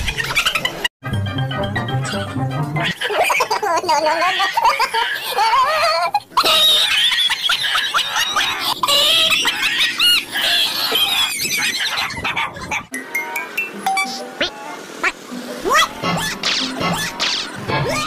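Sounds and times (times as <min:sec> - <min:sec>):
dog yelping and squealing: 0:04.3 - 0:12.9.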